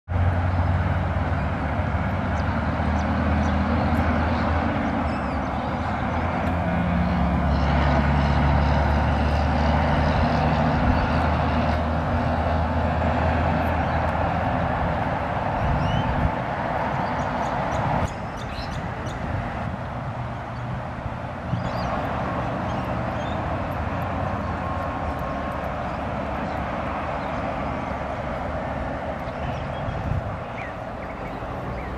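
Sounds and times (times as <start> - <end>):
road traffic rumble: 0.0 - 31.9
bird chirps: 5.1 - 5.7, 15.8 - 16.1, 17.0 - 19.2, 21.5 - 22.0, 22.6 - 23.4, 29.2 - 31.9.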